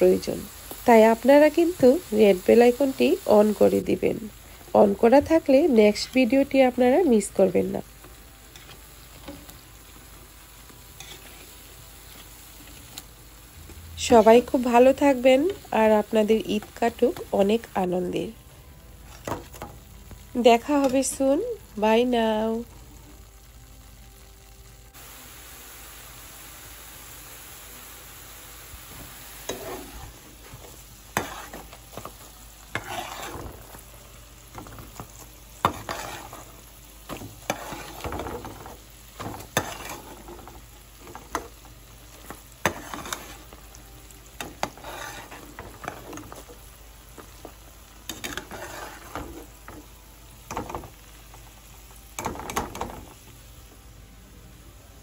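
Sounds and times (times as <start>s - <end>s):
deep-frying sizzle in hot oil: 0.0s - 55.0s
metal spoon scraping metal pan: 11.0s - 11.5s, 29.4s - 30.2s, 31.1s - 33.8s, 35.6s - 36.5s, 37.1s - 41.5s, 42.6s - 43.6s, 44.4s - 46.4s, 48.1s - 49.8s.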